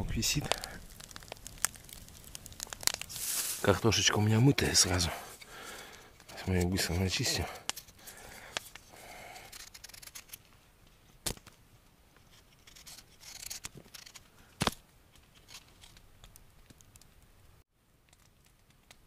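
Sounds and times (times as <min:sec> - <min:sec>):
knife peeling potato: 0:09.2 - 0:10.4, 0:12.6 - 0:14.2.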